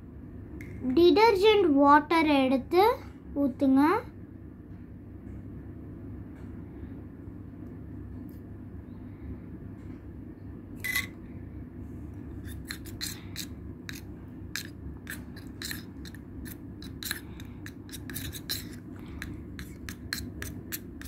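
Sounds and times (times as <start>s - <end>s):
metal spoon scraping glass: 10.8s - 11.2s, 12.4s - 18.8s.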